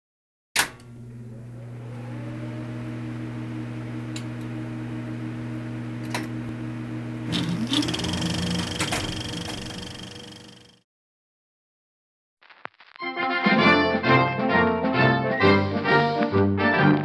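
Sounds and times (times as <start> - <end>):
motor humming: 0.8 - 10.8.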